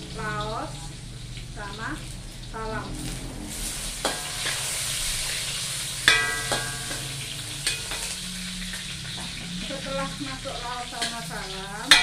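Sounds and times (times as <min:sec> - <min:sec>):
food sizzling in hot oil: 0:00.0 - 0:12.0
metal spatula scraping wok: 0:02.0 - 0:12.0
ringing metallic clang: 0:06.1 - 0:09.4.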